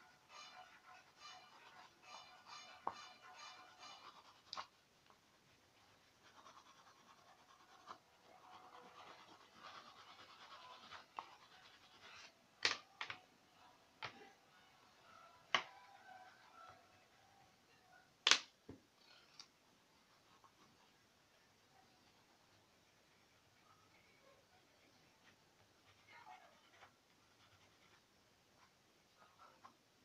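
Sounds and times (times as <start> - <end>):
crayon rubbing on paper: 0.3 - 4.8, 5.7 - 12.4.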